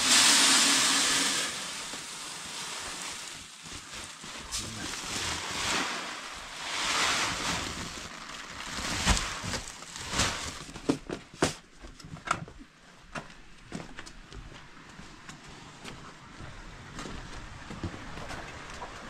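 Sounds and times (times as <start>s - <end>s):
grain pouring into sack: 0.0s - 10.7s.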